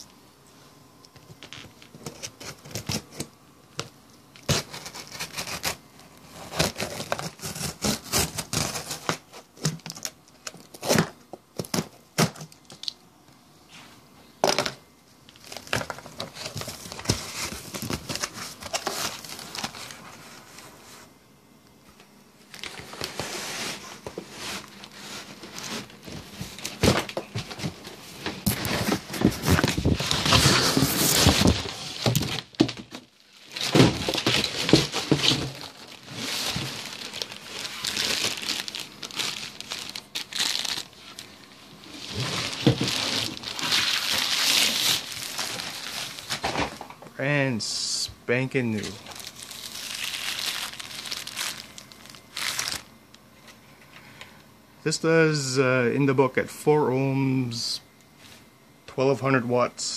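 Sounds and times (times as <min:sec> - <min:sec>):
cardboard crinkling and tearing: 0:01.3 - 0:03.3, 0:04.4 - 0:12.9, 0:15.3 - 0:20.8, 0:22.5 - 0:46.9, 0:48.7 - 0:52.9.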